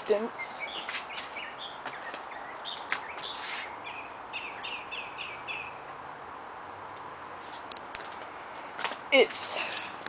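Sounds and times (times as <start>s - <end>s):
small birds chirping: 0.0s - 6.0s.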